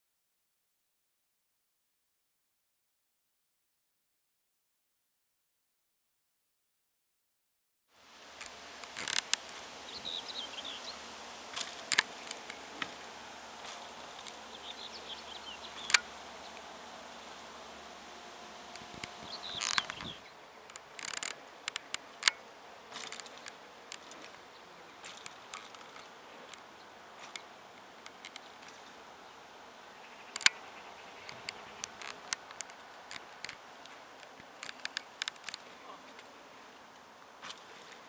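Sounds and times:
outdoor background noise: 7.9s - 38.0s
insect buzzing: 8.0s - 35.7s
sharp clicks and ticks: 18.7s - 22.4s, 30.3s - 30.6s, 31.2s - 35.7s.

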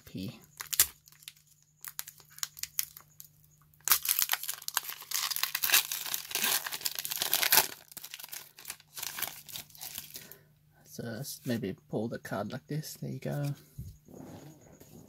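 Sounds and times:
foil wrapper crinkling and tearing: 0.2s - 10.4s.

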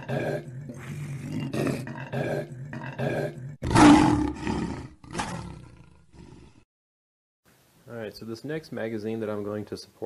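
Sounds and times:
lion growling: 0.0s - 6.6s
lion roaring: 0.0s - 6.6s.

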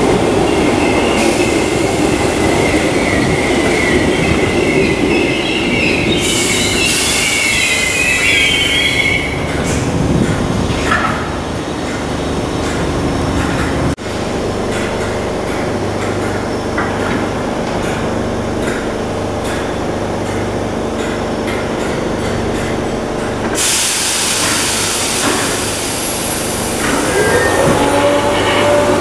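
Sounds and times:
electric train humming: 0.0s - 29.0s
air hiss: 23.6s - 27.5s
traction motors whining: 24.4s - 29.0s.

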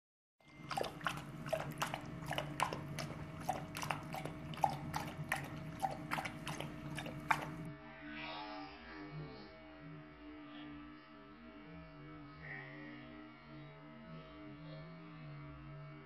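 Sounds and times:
dog lapping water from metal bowl: 0.4s - 7.7s.

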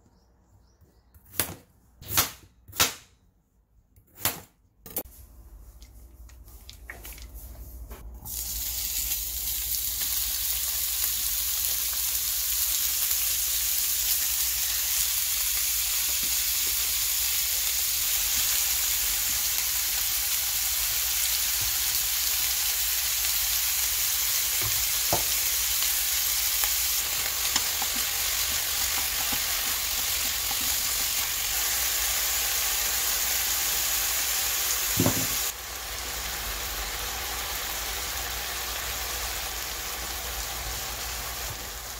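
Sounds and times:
meat sizzling in a pan: 8.3s - 41.9s
stirring knocks on a pan: 27.5s - 31.2s.

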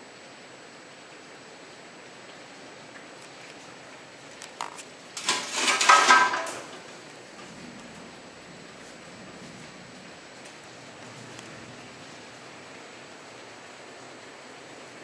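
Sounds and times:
heavy rain falling: 0.0s - 15.0s
loud clatter: 5.2s - 6.9s.

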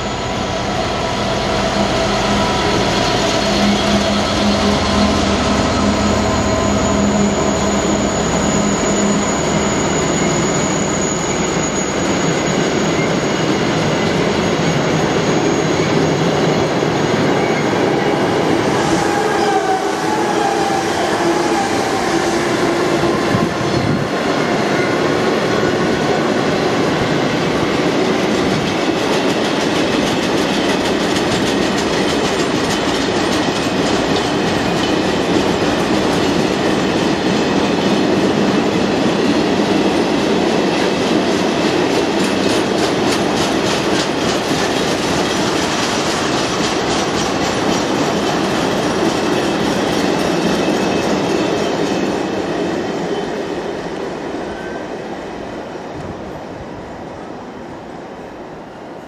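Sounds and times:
steel wheels rumbling on rail: 0.0s - 59.0s
wheel squeal: 1.8s - 18.2s
wheels clickety-clack: 27.9s - 52.4s.

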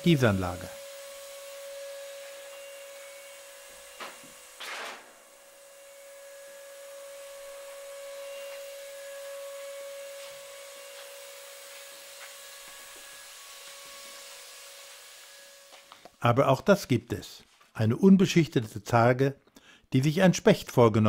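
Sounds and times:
machine humming: 0.0s - 16.1s.

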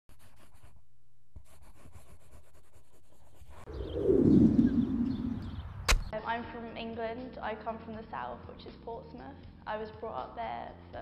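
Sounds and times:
loud low whoosh: 3.7s - 6.1s
sharp click: 5.9s - 6.1s.

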